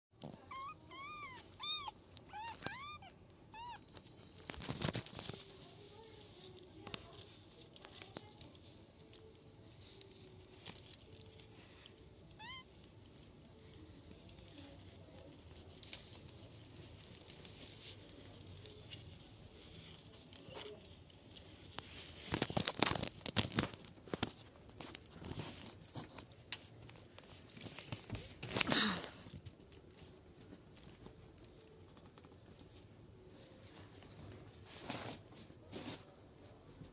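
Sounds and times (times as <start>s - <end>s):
rustling handling noises: 0.2s - 36.9s
kittens mewing: 0.3s - 4.0s.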